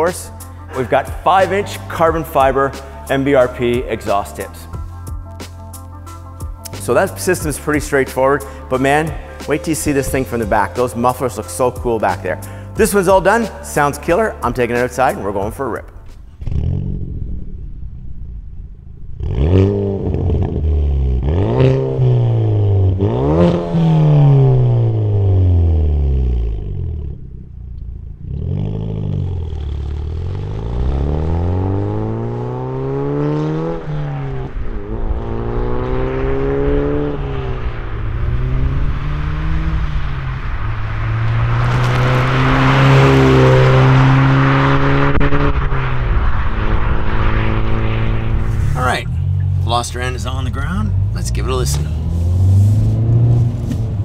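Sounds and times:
car engine revving and accelerating: 19.0 - 54.0
rushing noise: 33.5 - 54.0.

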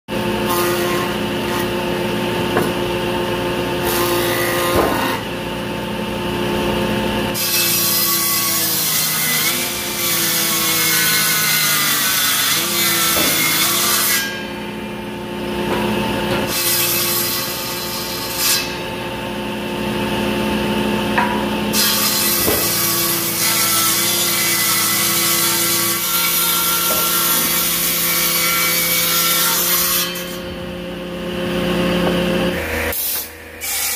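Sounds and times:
table saw cutting wood: 0.1 - 33.9.

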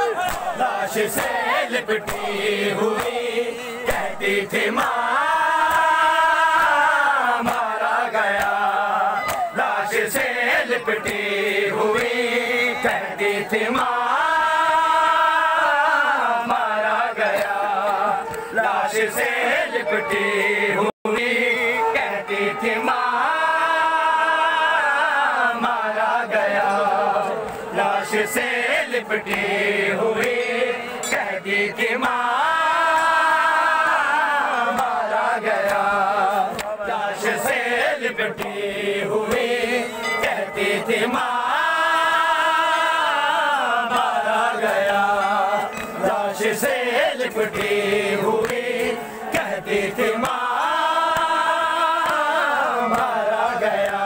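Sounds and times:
men chanting in unison: 0.0 - 54.0
hands slapping chests: 0.1 - 5.0, 7.4 - 10.3.

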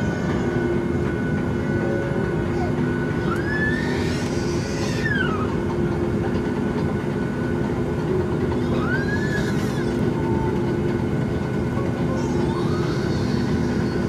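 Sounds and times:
airplane cabin rumble: 0.0 - 14.0
baby squealing: 3.2 - 5.6, 8.6 - 10.0.

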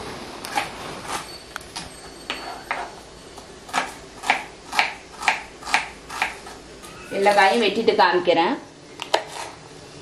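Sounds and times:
knife slicing onion on wooden board: 3.7 - 6.6, 9.1 - 9.6.

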